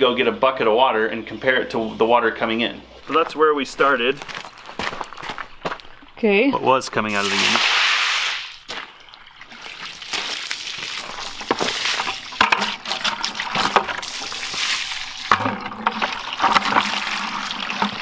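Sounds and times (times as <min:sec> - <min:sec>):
water splashing from bucket: 0:07.0 - 0:18.0
hose running into plastic bucket: 0:07.1 - 0:18.0.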